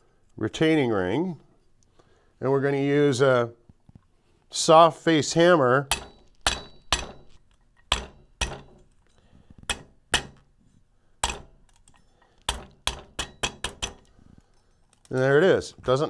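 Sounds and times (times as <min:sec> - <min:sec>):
hammer tapping metal ring: 0:05.9 - 0:09.0, 0:09.6 - 0:10.5, 0:11.2 - 0:14.1.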